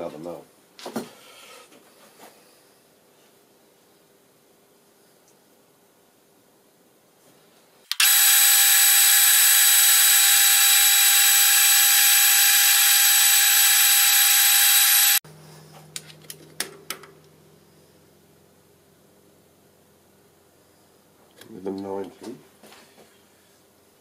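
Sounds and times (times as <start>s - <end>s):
caliper clicks: 7.9s - 15.2s
metal lathe whining: 7.9s - 15.2s.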